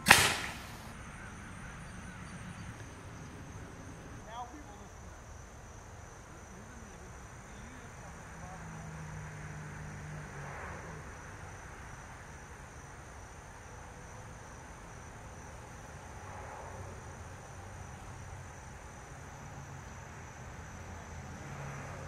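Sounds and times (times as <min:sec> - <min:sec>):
faint low outdoor rumble: 0:00.0 - 0:09.2
insects trilling: 0:00.0 - 0:22.0.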